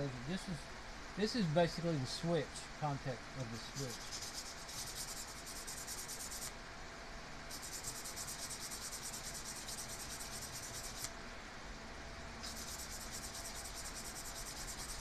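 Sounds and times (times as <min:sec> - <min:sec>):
sandpaper scratching on metal: 0:03.5 - 0:06.5, 0:07.5 - 0:11.1, 0:12.4 - 0:15.0.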